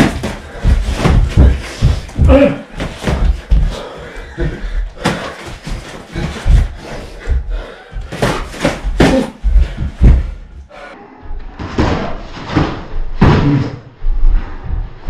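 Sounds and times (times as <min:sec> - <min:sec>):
boxing gloves thudding: 0:08.0 - 0:10.4.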